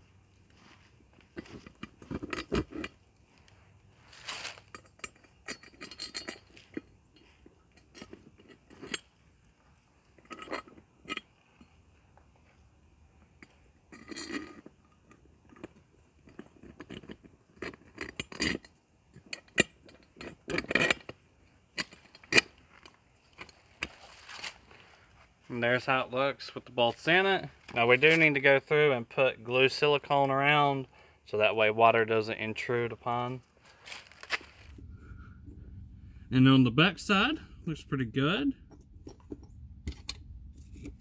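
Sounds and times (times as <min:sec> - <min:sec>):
metal brackets clinking and scraping: 0:01.3 - 0:03.1, 0:04.1 - 0:11.9, 0:13.3 - 0:24.5.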